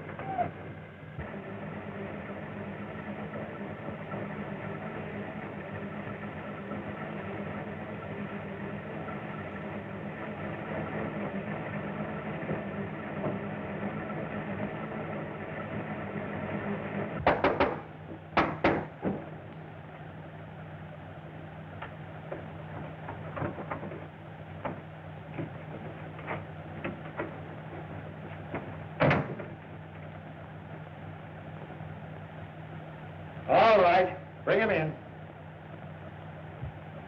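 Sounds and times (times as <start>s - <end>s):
car engine running: 0.0s - 37.0s
steady low hum: 0.0s - 37.0s
sharp knocks and bangs: 17.2s - 19.4s.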